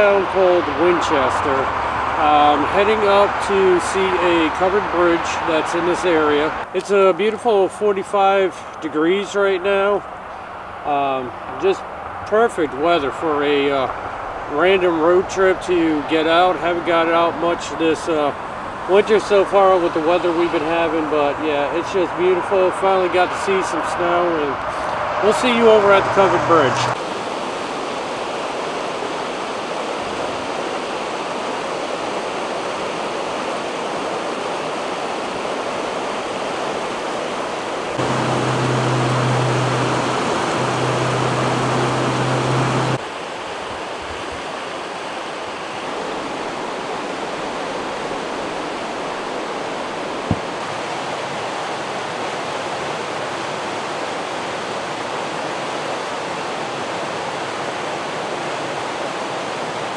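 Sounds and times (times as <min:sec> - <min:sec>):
river running over rocks: 0:00.0 - 0:59.9
low hum: 0:38.0 - 0:43.0.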